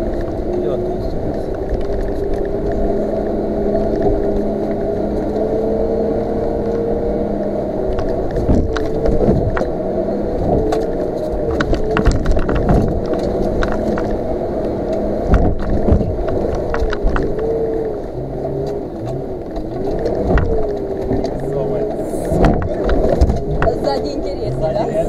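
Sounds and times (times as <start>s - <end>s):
vehicle engine running under load: 0.0s - 25.0s
knocks and clatters: 10.4s - 14.2s, 15.3s - 17.4s, 18.6s - 21.6s, 22.3s - 24.0s.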